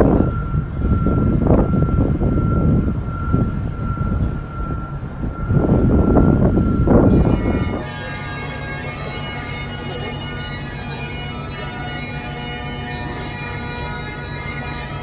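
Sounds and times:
low rumble: 0.0 - 8.8
faint high whine: 0.0 - 15.0
bagpipes playing: 6.8 - 15.0.

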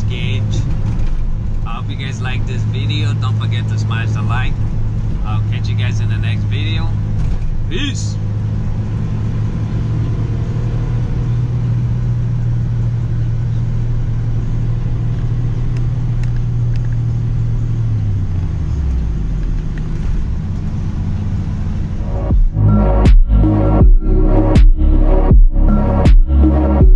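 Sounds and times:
car engine drone: 0.0 - 26.9
road noise: 0.0 - 26.9.

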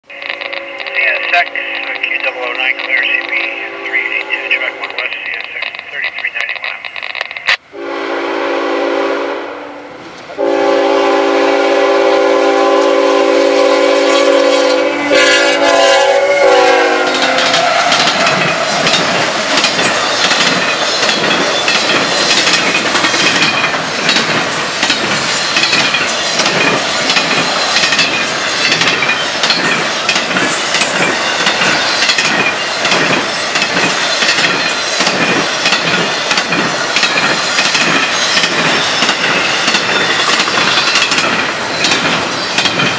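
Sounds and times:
locomotive air horn: 0.1 - 5.4, 7.7 - 18.1
train wheels clattering over rails: 17.1 - 42.9.

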